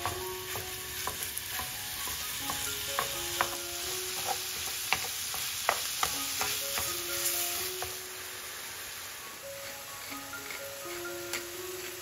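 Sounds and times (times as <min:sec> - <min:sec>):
wooden spoon knocking on pan: 0:00.0 - 0:07.0
meat sizzling in a frying pan: 0:00.0 - 0:12.0.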